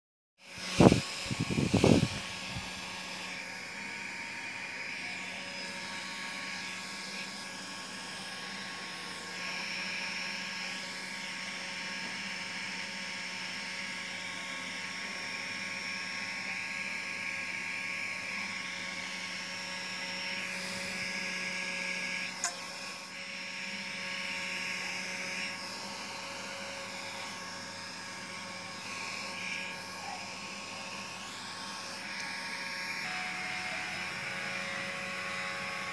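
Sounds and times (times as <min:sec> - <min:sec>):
small electric motor whining: 0:00.4 - 0:35.9.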